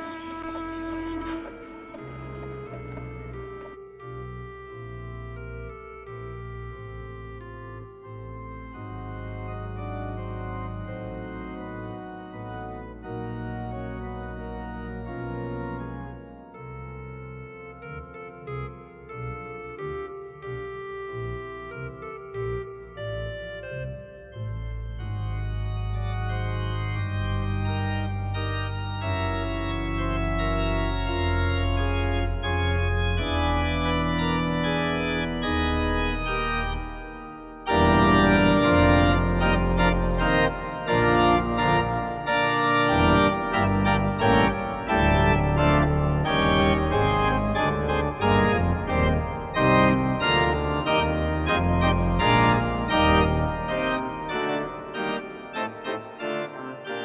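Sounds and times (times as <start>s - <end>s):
background music: 0.0s - 57.0s.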